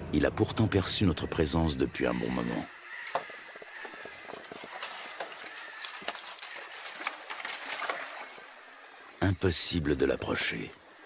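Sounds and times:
dry branches crackling and snapping: 2.9 - 9.3.

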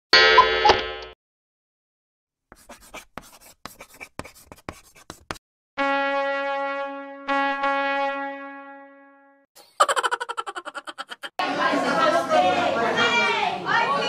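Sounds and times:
chalk scratching on blackboard: 2.5 - 5.4
held brass note: 5.8 - 9.4.

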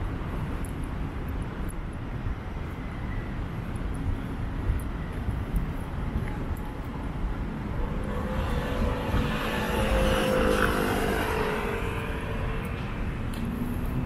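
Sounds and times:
city street noise: 0.0 - 14.0
engine passing by: 7.6 - 14.0.

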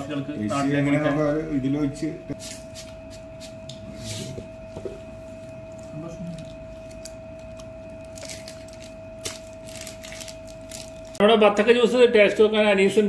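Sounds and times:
steady humming tone: 0.0 - 13.0.

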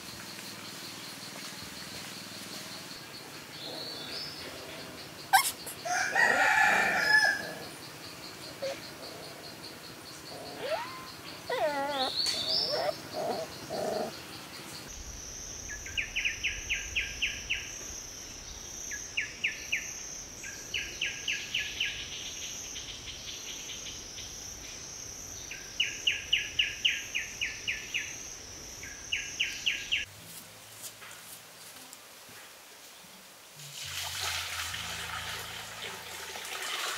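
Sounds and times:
insects droning: 0.0 - 33.6.

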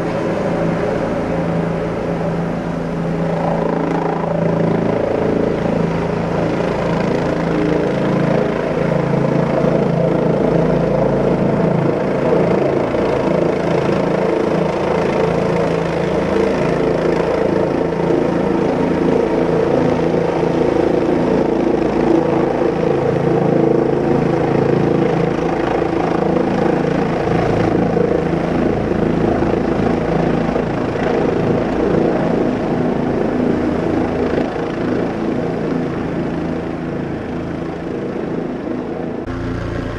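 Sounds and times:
rotors whirring hum: 39.3 - 39.9.

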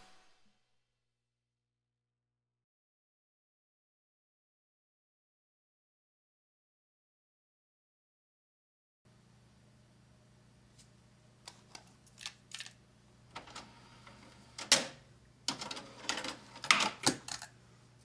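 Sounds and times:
low steady hum: 9.1 - 18.0.

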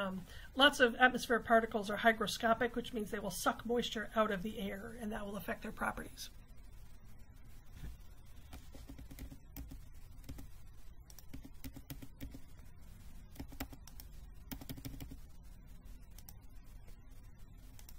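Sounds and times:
computer keys clicking: 8.8 - 12.4, 13.3 - 15.2.

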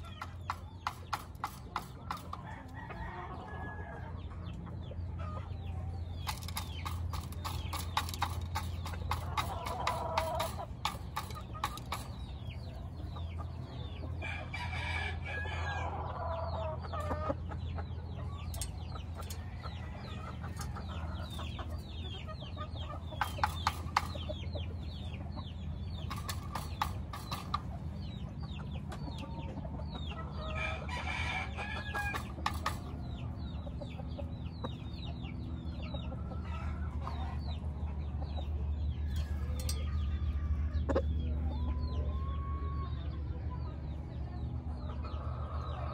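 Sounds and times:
roosters crowing: 0.0 - 4.4, 5.1 - 24.6, 29.1 - 33.8, 35.5 - 37.7, 38.5 - 43.2
chickens clucking: 0.0 - 45.9
steady low hum: 0.0 - 45.9.

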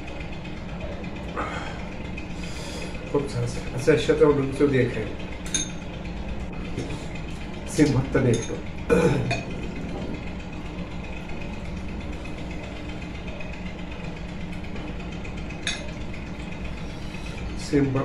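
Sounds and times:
steady machine hum: 0.0 - 18.0
spoon clinking against a bowl: 8.3 - 8.6.

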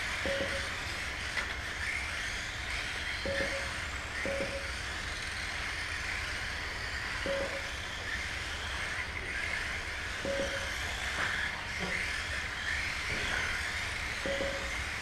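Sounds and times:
rc car motors whirring: 0.0 - 15.0
short beeps: 0.3 - 0.7, 3.3 - 4.7, 7.3 - 7.7, 10.3 - 10.7, 14.3 - 14.8.

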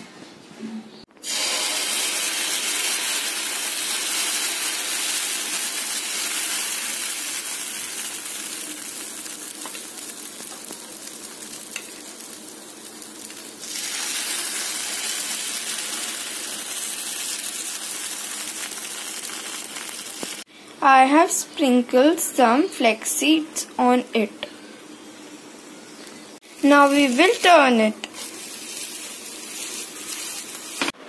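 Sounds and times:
batter sizzling in oil: 1.2 - 20.5, 26.4 - 31.0.

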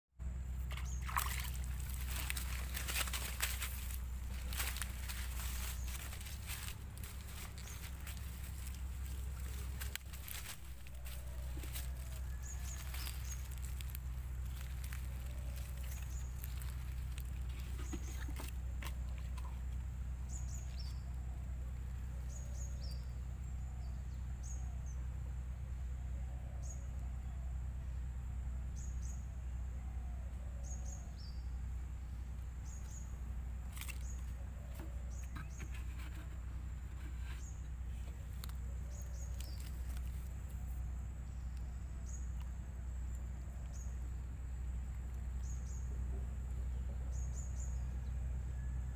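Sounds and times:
steady low rumble: 0.2 - 48.9.

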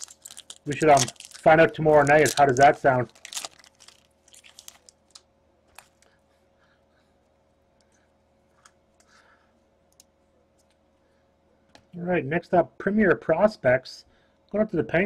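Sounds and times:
trading cards rustling: 0.0 - 6.1.

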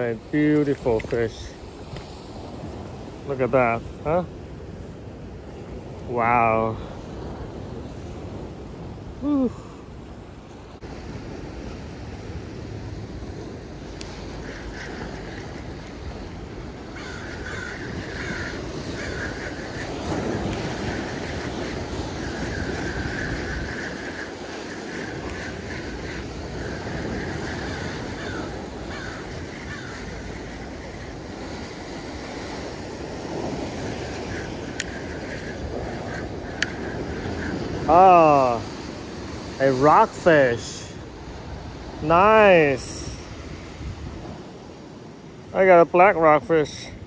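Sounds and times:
wind buffeting microphone: 0.0 - 47.0
surf breaking against rocks: 13.6 - 46.6.

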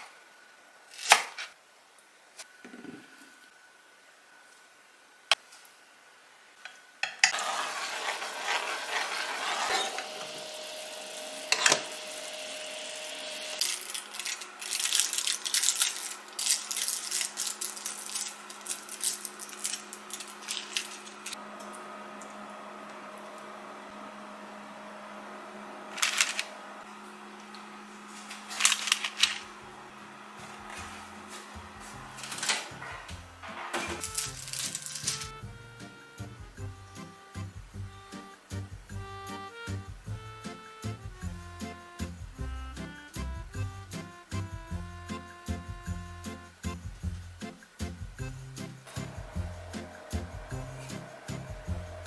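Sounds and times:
aluminium foil crinkling: 13.6 - 21.4, 25.9 - 26.5, 28.1 - 29.6, 34.0 - 35.3
handling noise: 30.3 - 35.4.

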